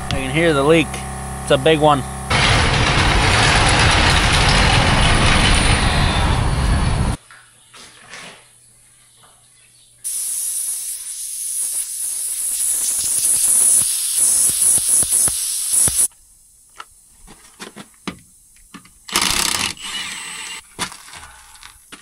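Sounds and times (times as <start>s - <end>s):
clicks and knocks: 2.3s - 6.5s
air hissing from tyre: 10.1s - 16.1s.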